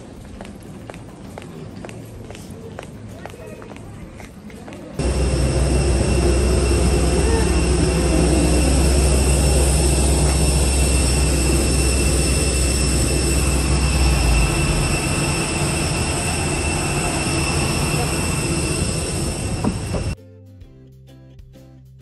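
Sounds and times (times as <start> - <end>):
heavy low rumble: 5.0 - 20.2
high steady machinery tones: 5.0 - 20.2.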